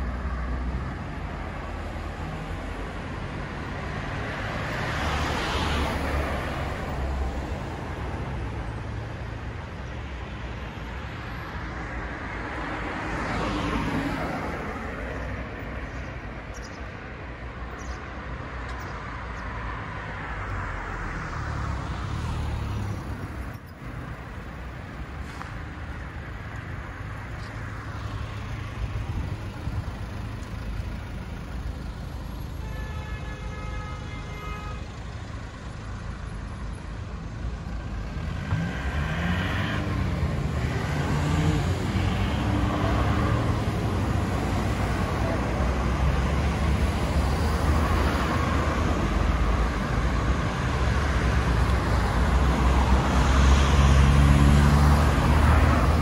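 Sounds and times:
cars and trucks passing: 0.0s - 56.0s.

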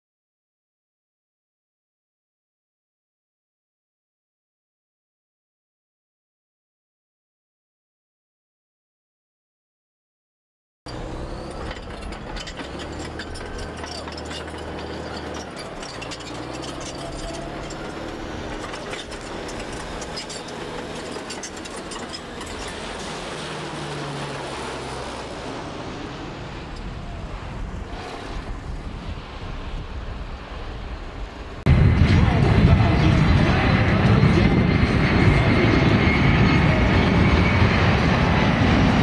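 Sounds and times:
propeller planes droning overhead: 10.9s - 39.0s.

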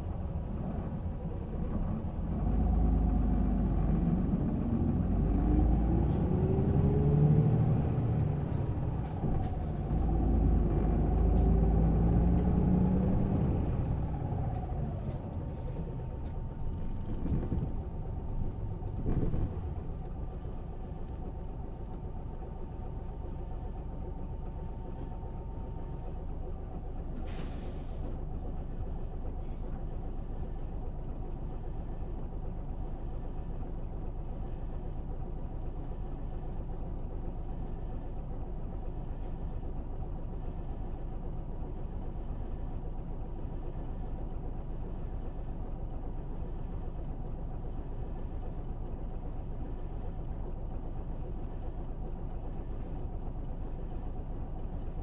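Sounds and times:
bus engine rumbling: 0.0s - 55.0s
air release hiss: 27.2s - 28.0s.

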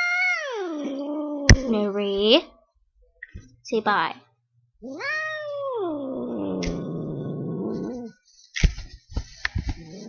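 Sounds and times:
cat meowing: 4.8s - 6.1s.

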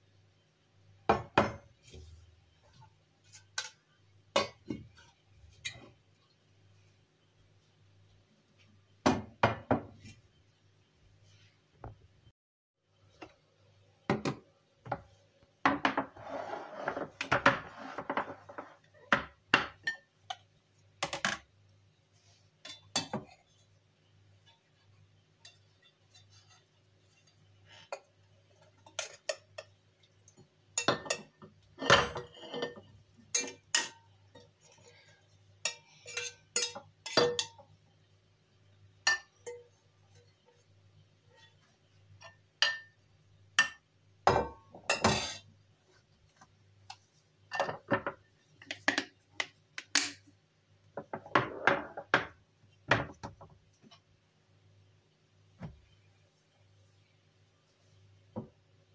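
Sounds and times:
lids scraping and rustling: 15.8s - 19.0s
glass containers clinking: 30.8s - 34.0s, 35.7s - 37.6s.

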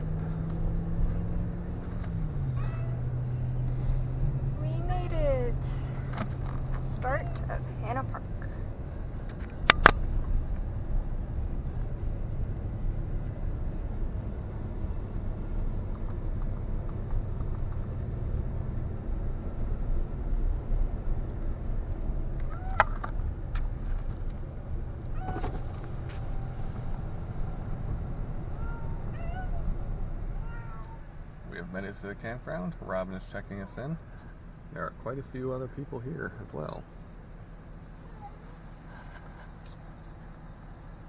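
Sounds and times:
low rumble of engine and road: 0.0s - 41.0s
faint cat meows: 2.5s - 3.1s, 22.5s - 23.0s, 25.1s - 25.5s, 28.6s - 29.8s, 30.4s - 31.1s.

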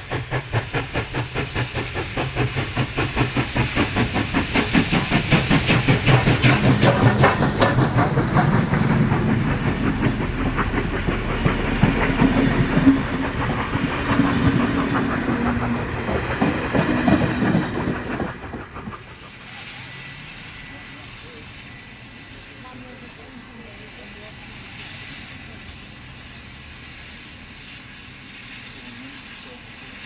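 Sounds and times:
wheels clattering over rail joints: 0.0s - 20.0s
steam locomotive exhaust beat: 0.0s - 30.0s.

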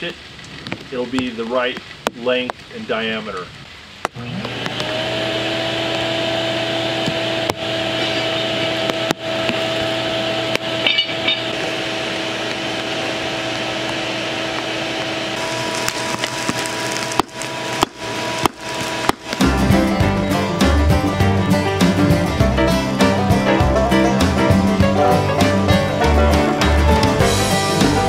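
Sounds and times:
fire crackling and spitting: 0.0s - 2.8s, 8.8s - 28.0s
air blower humming: 4.2s - 28.0s.

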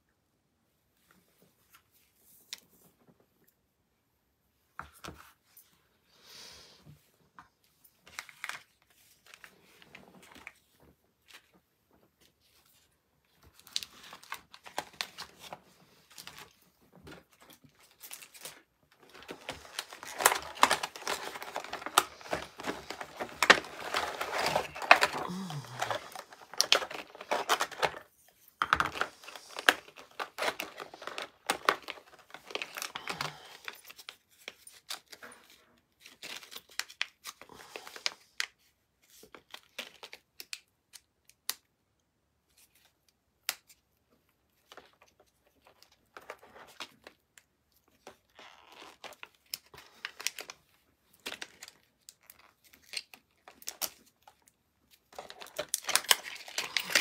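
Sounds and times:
plastic packaging crinkling: 13.4s - 35.2s, 47.9s - 57.0s.

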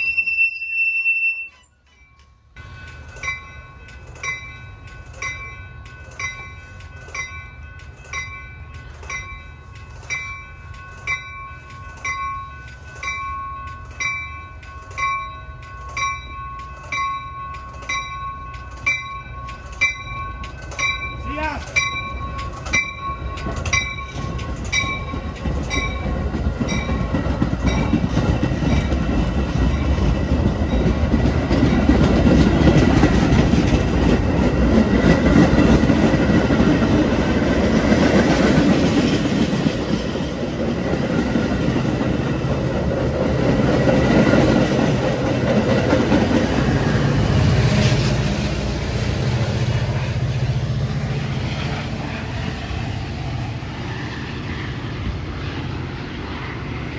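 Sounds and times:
diesel locomotive engine drone: 0.0s - 56.9s
train cars rumbling: 0.0s - 56.9s
bell striking: 1.6s - 26.1s
wheels clicking over rails: 1.6s - 47.2s.

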